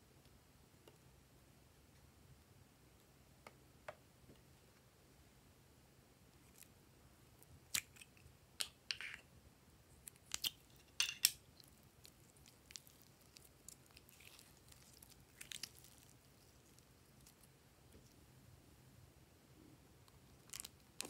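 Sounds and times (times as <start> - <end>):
clay squishing by hand: 6.2 - 18.3, 19.9 - 21.0
plastic wrap crinkling: 11.6 - 17.5, 20.2 - 21.0.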